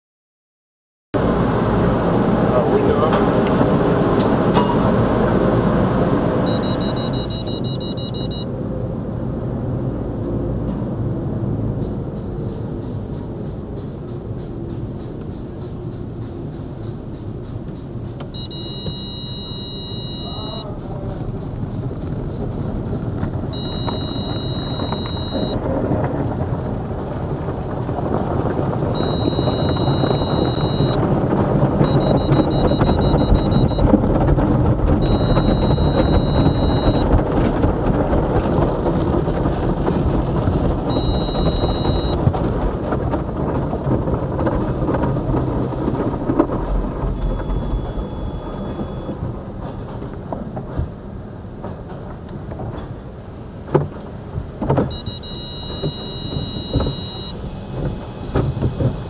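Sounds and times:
car wash machinery and water spray: 1.2s - 59.0s
high electronic warning tone: 6.4s - 8.5s, 18.3s - 20.8s, 23.5s - 25.6s, 29.0s - 31.0s, 31.8s - 34.0s, 35.0s - 37.2s, 40.9s - 42.2s, 47.2s - 49.2s, 54.9s - 59.0s
rapid high-pitched beeping: 6.5s - 8.5s, 18.4s - 20.8s, 23.5s - 25.6s, 29.0s - 31.0s, 31.8s - 34.0s, 35.0s - 37.1s, 40.9s - 42.2s, 47.2s - 49.1s, 54.9s - 59.0s.

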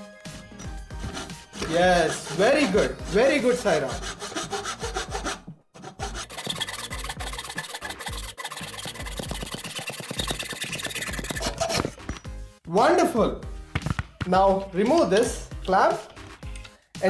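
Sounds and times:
pull saw cutting wood: 0.9s - 12.0s.

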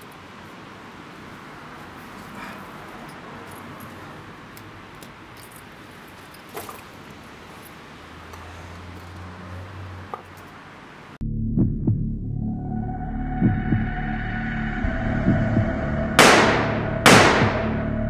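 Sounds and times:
low hum: 11.2s - 18.0s.

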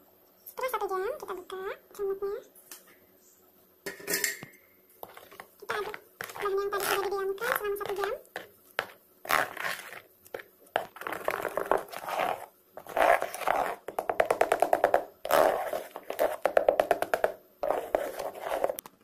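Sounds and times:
ladle squelching in batter: 5.0s - 13.9s.

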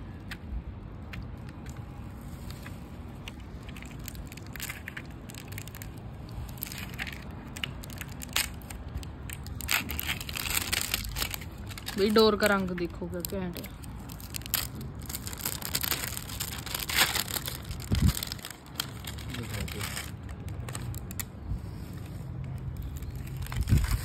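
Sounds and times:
packaging tearing and crinkling: 2.3s - 21.3s, 22.5s - 24.0s.

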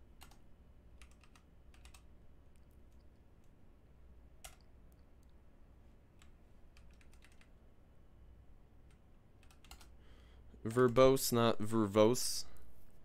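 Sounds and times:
low steady hum: 0.0s - 13.0s
computer keyboard keystrokes: 0.2s - 0.4s, 1.0s - 3.5s, 4.4s - 5.3s, 6.2s - 7.5s, 8.8s - 10.0s.

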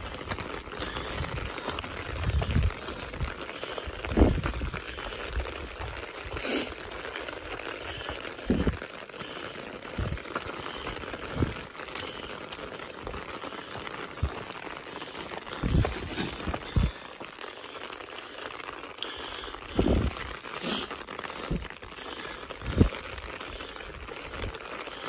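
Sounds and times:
footsteps on rocky trail: 0.0s - 6.4s, 7.1s - 17.3s, 19.7s - 21.7s.

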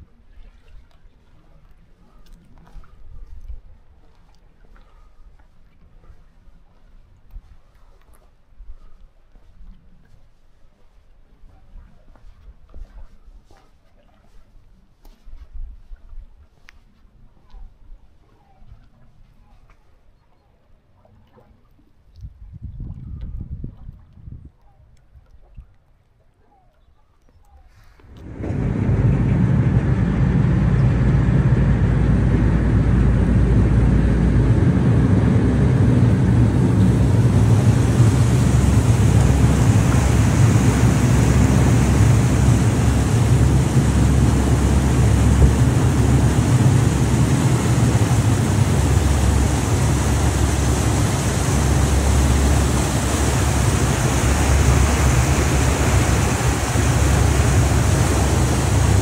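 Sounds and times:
wind: 0.0s - 59.0s
ferry engine drone: 28.0s - 59.0s
propeller wash churning: 28.0s - 59.0s.

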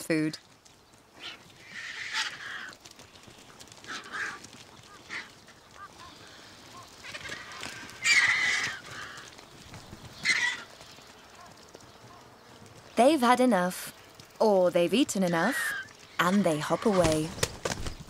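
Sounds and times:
vultures hissing calls: 1.2s - 2.8s, 3.8s - 9.4s, 10.1s - 12.2s, 15.1s - 17.2s.

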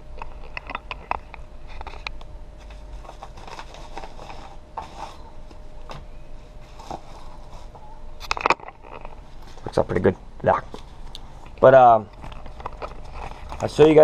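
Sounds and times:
paper envelope rustling: 2.6s - 5.6s, 6.5s - 10.1s.

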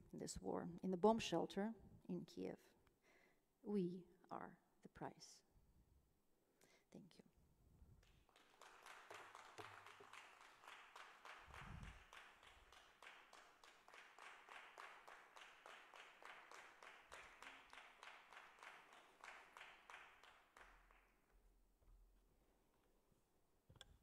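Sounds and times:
audience applauding: 8.0s - 21.1s.

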